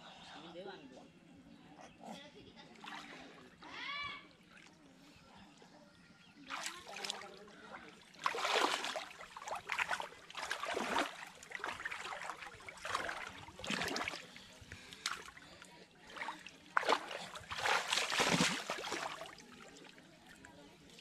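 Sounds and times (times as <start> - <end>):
pond water splashing: 2.8 - 3.4, 6.4 - 21.0.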